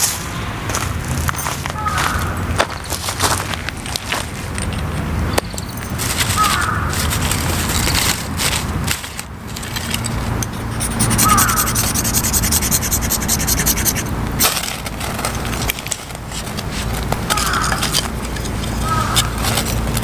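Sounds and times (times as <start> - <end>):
fire-starter rod scraping: 6.9 - 20.0.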